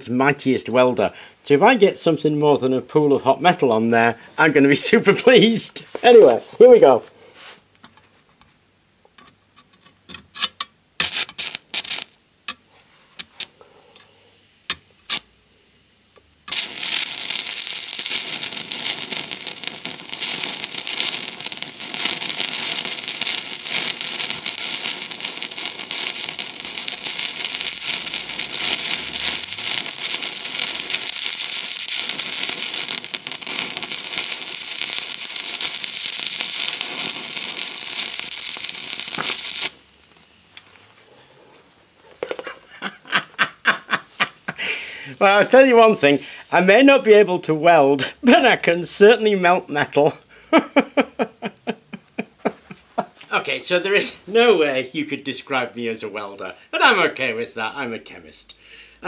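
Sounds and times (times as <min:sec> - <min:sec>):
welding rod crackles: 0:09.6 - 0:41.1, 0:42.0 - 0:42.8, 0:44.0 - 0:50.1
welding arc sizzling: 0:10.4 - 0:41.2, 0:43.9 - 0:50.0.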